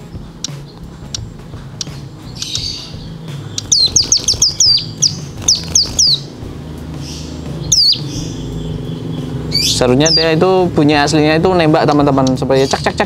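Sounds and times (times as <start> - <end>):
bird call of sharp high notes: 0.4 - 6.3, 7.0 - 10.4.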